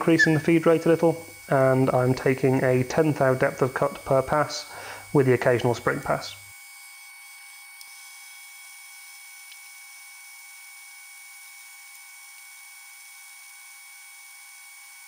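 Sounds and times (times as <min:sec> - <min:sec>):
metal lathe faint whine: 0:00.0 - 0:11.9.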